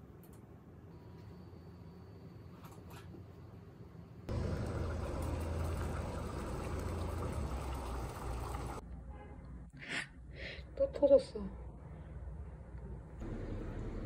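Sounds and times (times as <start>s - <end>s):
water boiling hard: 4.3s - 8.8s.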